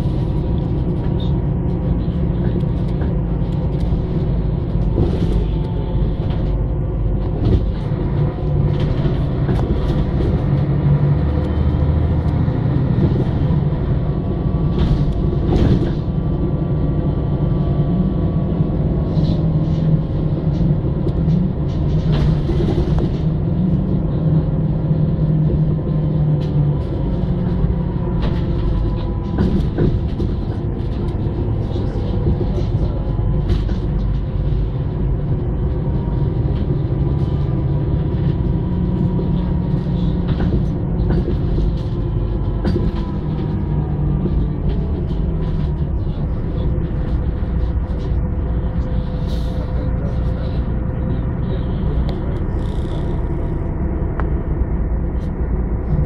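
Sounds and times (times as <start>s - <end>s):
bus engine drone: 0.0s - 56.0s
bodywork knocks and rattles: 26.6s - 49.0s.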